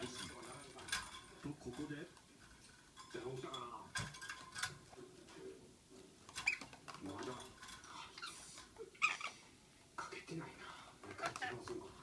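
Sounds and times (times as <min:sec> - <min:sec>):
bird scratching and clattering in cage: 0:00.0 - 0:05.5, 0:06.2 - 0:08.7.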